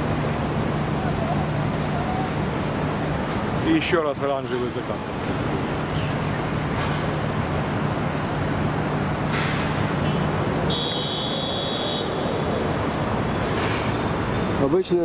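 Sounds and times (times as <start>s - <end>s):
car engines running: 0.0s - 15.0s
car horn: 10.5s - 12.5s.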